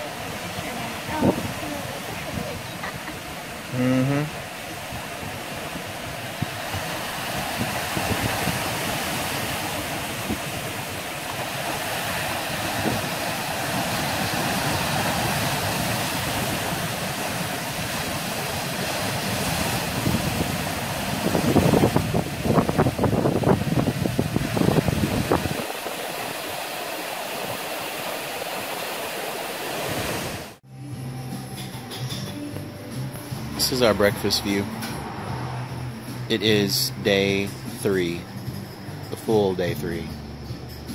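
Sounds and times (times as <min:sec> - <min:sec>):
surf washing over rocks: 0:00.0 - 0:30.6.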